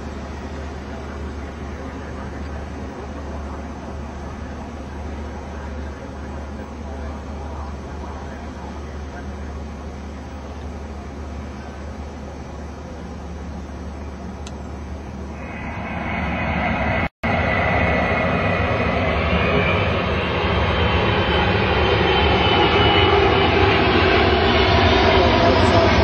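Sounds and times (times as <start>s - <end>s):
jet engine roar with whine: 0.0s - 26.0s.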